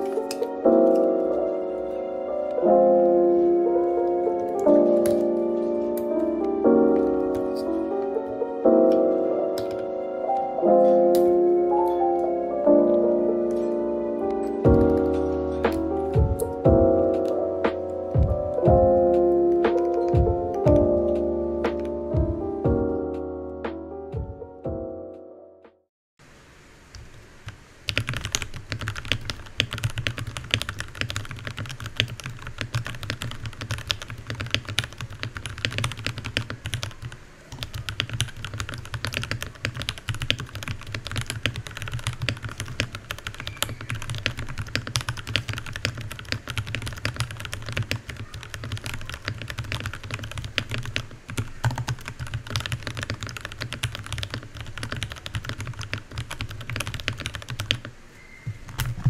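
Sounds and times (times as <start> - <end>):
fast typing on mechanical keyboard: 19.7 - 20.8, 27.9 - 57.9.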